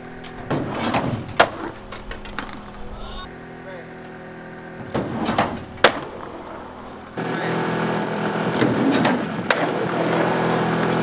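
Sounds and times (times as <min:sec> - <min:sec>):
skateboard wheels scraping metal: 0:00.0 - 0:03.3, 0:04.3 - 0:07.2, 0:08.2 - 0:11.0
steady rough noise: 0:00.0 - 0:11.0
skateboard clack: 0:00.1 - 0:03.3, 0:04.8 - 0:07.2, 0:08.5 - 0:11.0.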